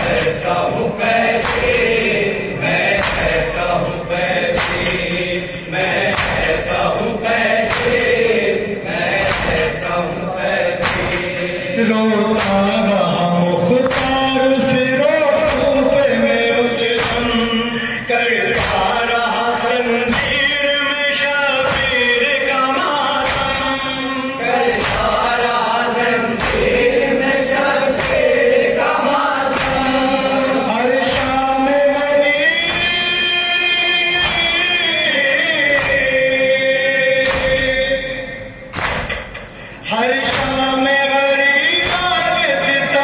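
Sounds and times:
chest-beating slaps: 0.0 - 11.5, 12.3 - 12.8, 13.8 - 14.7, 15.4 - 16.1, 16.8 - 20.6, 21.6 - 24.0, 24.6 - 30.4, 31.0 - 31.5, 32.6 - 33.3, 34.1 - 34.9, 35.6 - 36.3, 37.2 - 40.7, 41.8 - 42.3
group of men chanting: 0.0 - 43.0
man singing lament into microphone: 9.4 - 38.7, 39.8 - 43.0.

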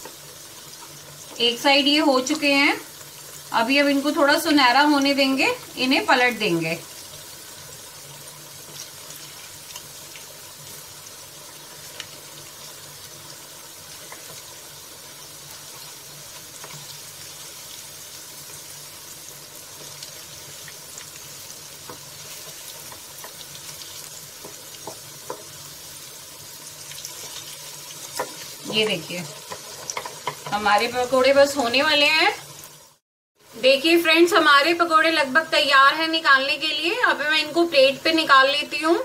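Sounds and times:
slices sizzling in a frying pan: 0.0 - 39.0
wooden spatula turning food in pan: 6.8 - 32.8.

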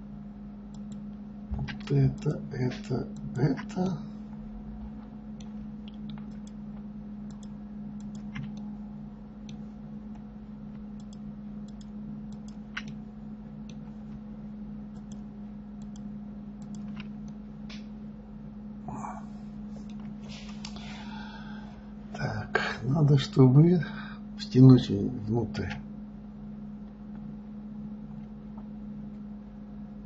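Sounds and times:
low electrical hum: 0.0 - 30.0
mouse and keyboard clicks: 5.4 - 6.6, 7.3 - 8.6, 11.0 - 13.0.

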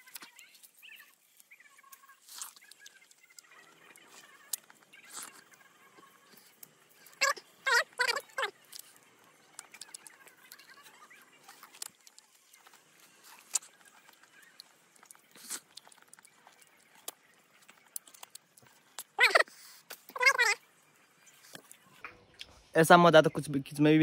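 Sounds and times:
fruit peel tearing: 0.0 - 5.5, 11.4 - 20.6
loud voice-like cry: 19.2 - 19.5.

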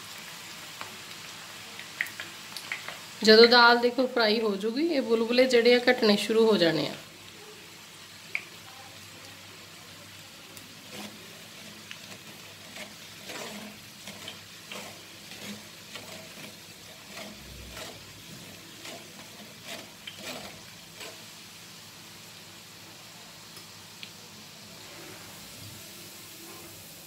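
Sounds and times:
lentils deep-frying in oil: 0.0 - 27.0
metal spoon scraping mesh: 10.9 - 21.2.

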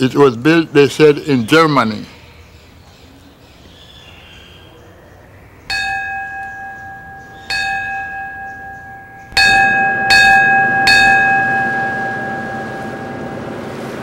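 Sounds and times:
metal bell ringing: 5.7 - 14.0.

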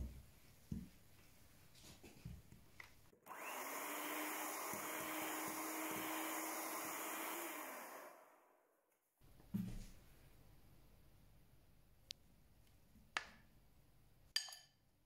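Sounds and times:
electric hand mixer whirring: 3.2 - 8.6.

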